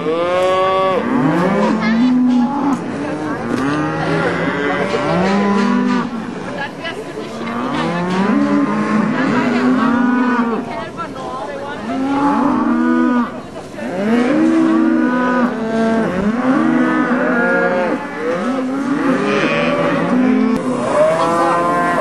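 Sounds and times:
cattle mooing: 0:07.4 - 0:10.6, 0:11.9 - 0:22.0.

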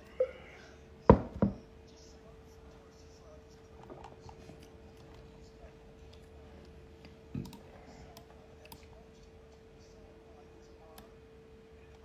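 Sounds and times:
faint hum: 0:00.0 - 0:12.0
computer mouse clicking: 0:07.0 - 0:08.9.

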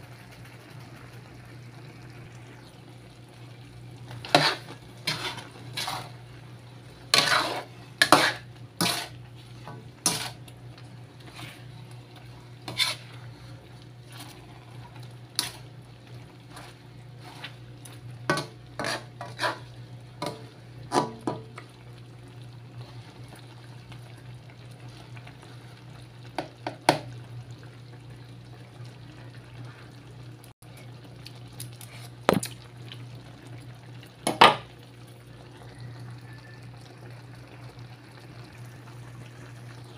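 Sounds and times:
metal spatula scraping a wok: 0:04.1 - 0:06.2, 0:07.0 - 0:10.5, 0:11.2 - 0:11.8, 0:12.6 - 0:13.6, 0:15.3 - 0:15.7, 0:16.4 - 0:17.6, 0:18.3 - 0:21.2.

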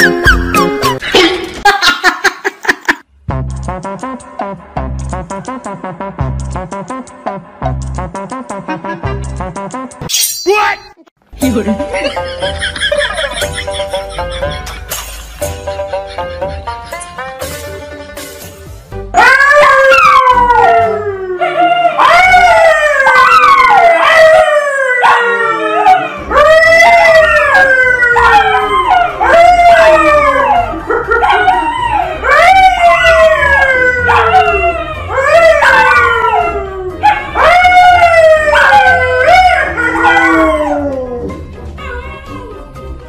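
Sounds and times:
man howling: 0:19.2 - 0:41.4
dogs howling: 0:19.2 - 0:42.8.

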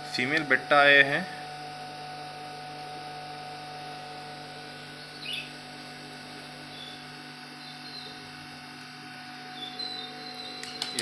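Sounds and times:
aquarium equipment humming: 0:00.0 - 0:11.0
faint high chirps: 0:07.6 - 0:08.2.

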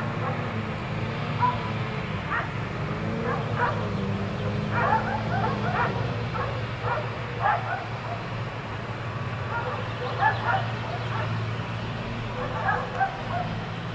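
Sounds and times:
dogs barking: 0:00.1 - 0:00.6, 0:01.3 - 0:02.6, 0:03.2 - 0:08.5, 0:09.4 - 0:13.9.

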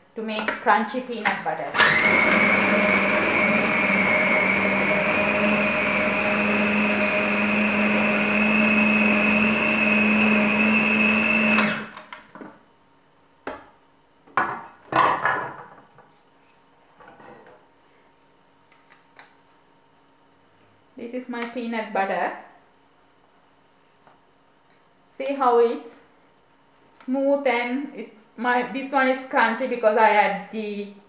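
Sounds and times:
food processor motor whining: 0:01.7 - 0:12.0.

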